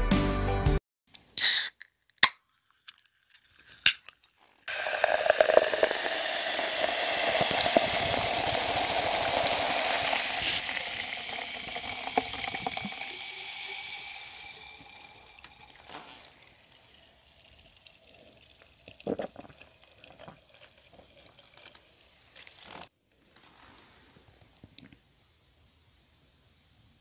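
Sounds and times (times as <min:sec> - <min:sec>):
drink can clicking open: 0:01.2 - 0:09.2
soda fizzing in a glass: 0:04.7 - 0:22.9.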